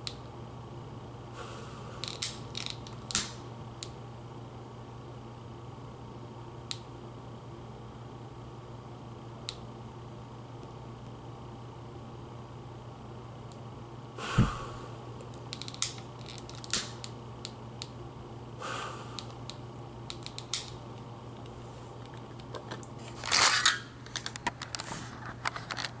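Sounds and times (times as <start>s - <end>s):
short gas hissing bursts: 14.2s - 14.9s
lighter trigger clicking: 19.2s - 20.8s.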